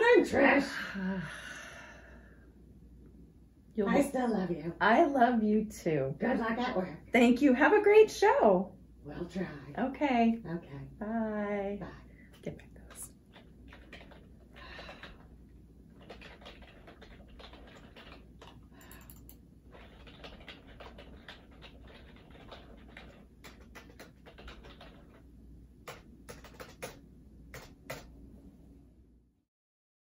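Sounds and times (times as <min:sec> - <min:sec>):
laptop keyboard typing: 0:13.2 - 0:28.2.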